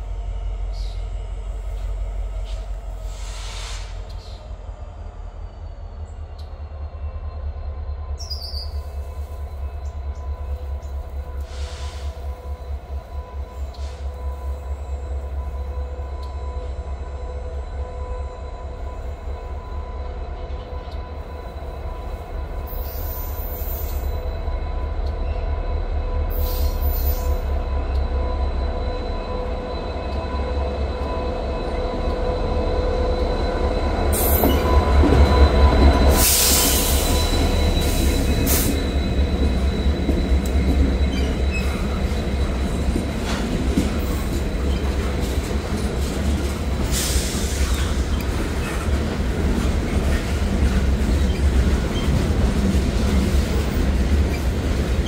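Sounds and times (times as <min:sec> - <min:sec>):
diesel locomotive rumble: 0:00.0 - 0:55.0
wheel squeal: 0:35.4 - 0:42.3, 0:51.2 - 0:52.2.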